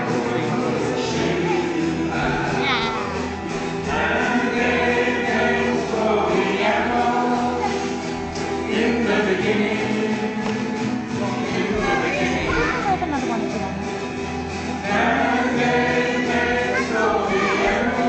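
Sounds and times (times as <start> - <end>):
group of voices singing: 0.0 - 13.6, 14.3 - 18.0
live band with guitars: 0.0 - 18.0.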